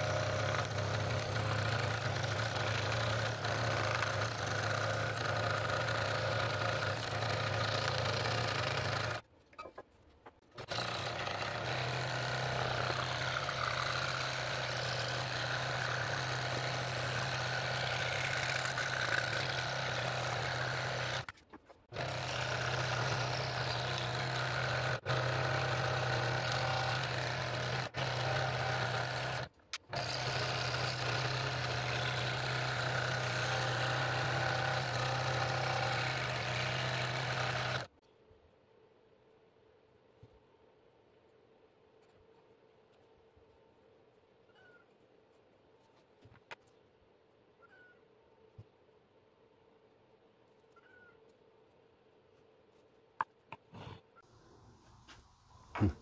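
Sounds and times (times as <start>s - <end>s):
scroll saw cutting wood: 0.0s - 9.3s, 10.4s - 38.0s.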